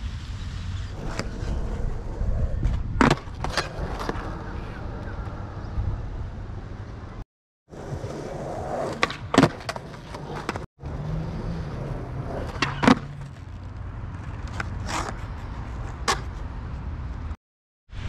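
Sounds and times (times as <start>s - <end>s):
skateboard wheels rolling: 0.0s - 17.3s
skateboard tail popping and landing: 2.5s - 4.4s, 8.0s - 10.6s, 12.3s - 13.5s.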